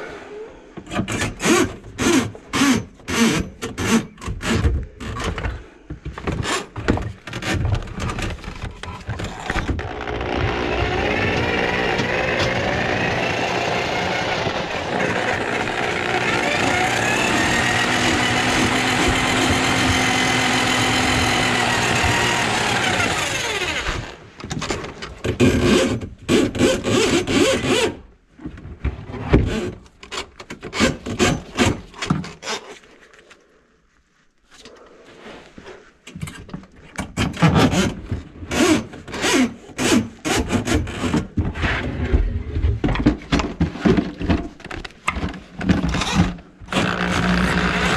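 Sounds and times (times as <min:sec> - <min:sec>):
clattering knocking and scraping: 0:02.9 - 0:13.0, 0:14.4 - 0:23.2, 0:40.2 - 0:47.9
drain cleaning machine motor: 0:09.9 - 0:24.0.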